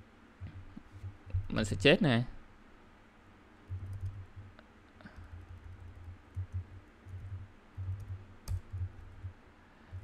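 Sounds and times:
typing on computer keyboard: 3.7 - 4.3, 5.1 - 9.3.

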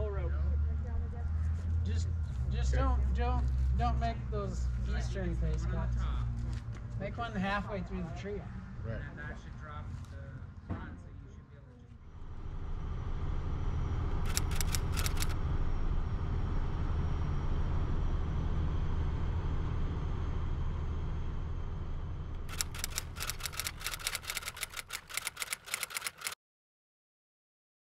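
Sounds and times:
rapid typewriter-style clicks: 14.3 - 15.4, 22.4 - 26.4.

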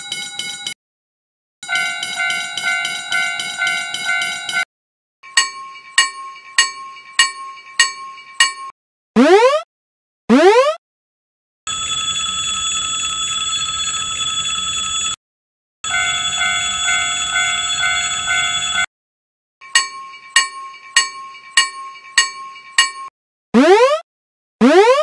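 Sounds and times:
railroad crossing bells ringing: 0.0 - 0.7, 1.6 - 8.7, 15.8 - 18.9, 19.6 - 23.1.

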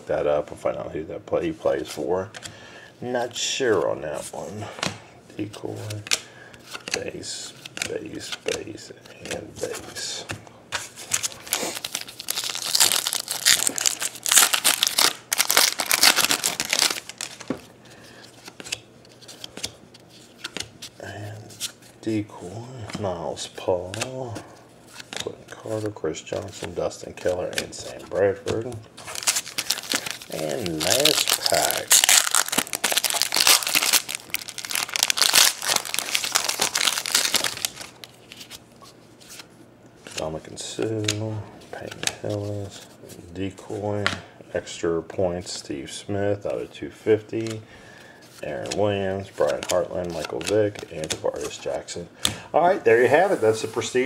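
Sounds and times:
foil wrapper crinkling: 11.0 - 17.5, 29.0 - 38.6.

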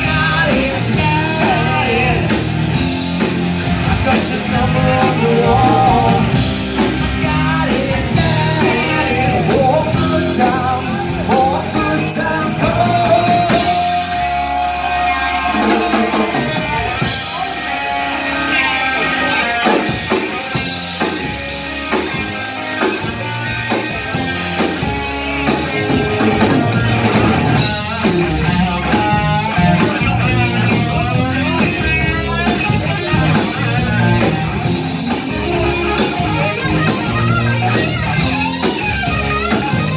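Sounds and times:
person singing: 0.0 - 2.5, 3.9 - 6.4, 7.2 - 16.6
live rock band playing: 0.0 - 39.9.

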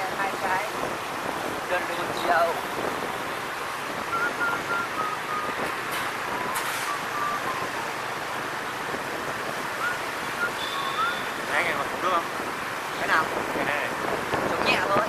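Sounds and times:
road noise: 0.0 - 15.0
wind rushing over microphone: 0.0 - 15.0.

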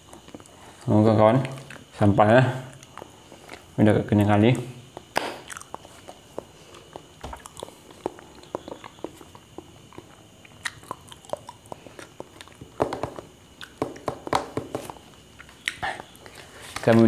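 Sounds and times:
chewing and wet mouth clicks: 1.4 - 1.9, 2.7 - 3.7, 4.9 - 12.7, 13.6 - 13.8.

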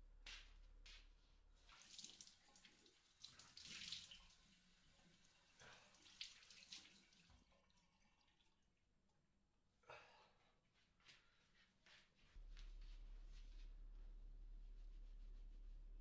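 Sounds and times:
water splashing at a sink: 1.6 - 8.8.

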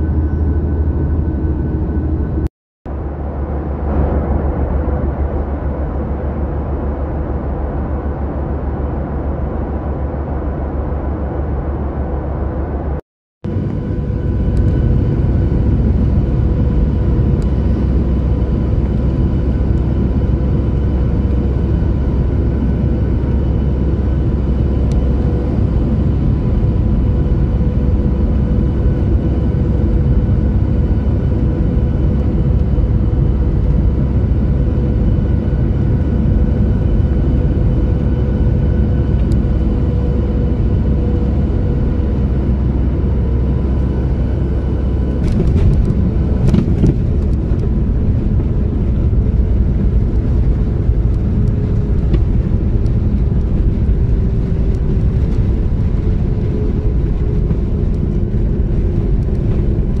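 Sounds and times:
jet engine hum with whine: 0.0 - 60.0
rolling rumble on runway: 13.5 - 60.0.

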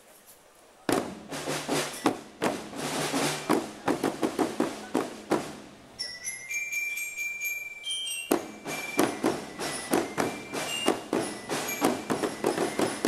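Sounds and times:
marching band drums: 0.9 - 5.9, 8.3 - 13.0
high bell-like notes: 6.0 - 13.0.

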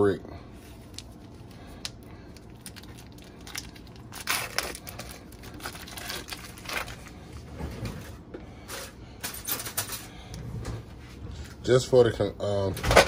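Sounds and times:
foil wrapper crinkling and tearing: 0.8 - 7.2.

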